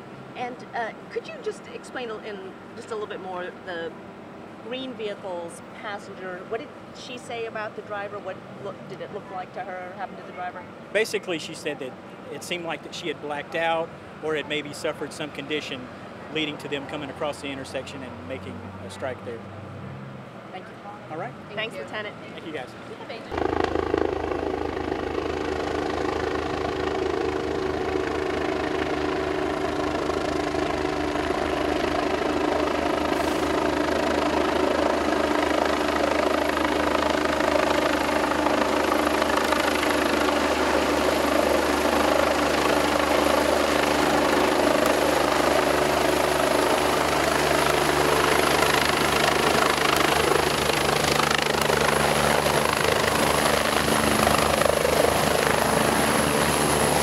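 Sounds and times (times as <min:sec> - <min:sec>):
helicopter rotor beat: 0:00.0 - 0:19.6, 0:21.2 - 0:57.0
high turbine whine: 0:23.2 - 0:57.0.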